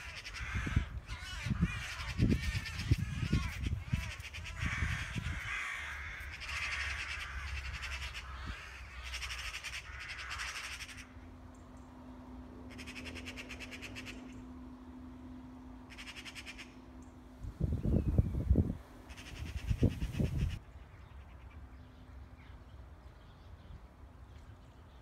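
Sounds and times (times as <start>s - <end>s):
magpie alarm chatter: 0.0s - 11.1s, 12.7s - 14.4s, 15.9s - 16.8s, 19.1s - 20.6s.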